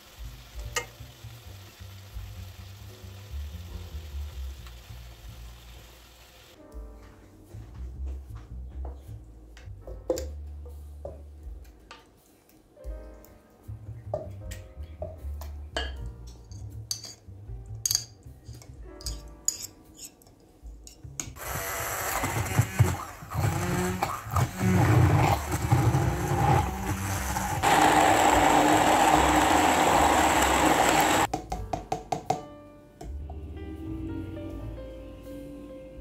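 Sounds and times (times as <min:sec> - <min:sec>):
wooden spatula scraping pan: 0:22.2 - 0:27.8.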